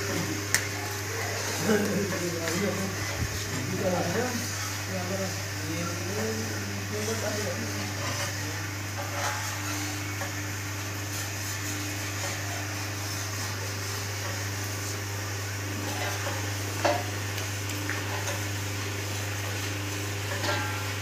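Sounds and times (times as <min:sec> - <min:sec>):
boiling milk churning: 0:00.0 - 0:21.0.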